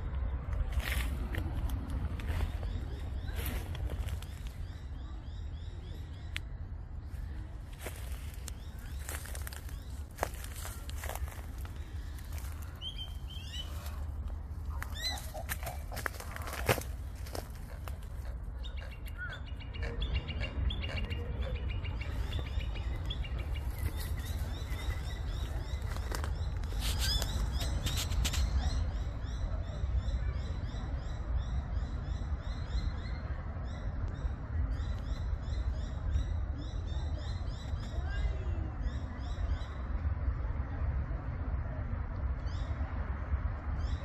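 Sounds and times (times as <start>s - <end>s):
small birds chirping: 2.2s - 39.8s.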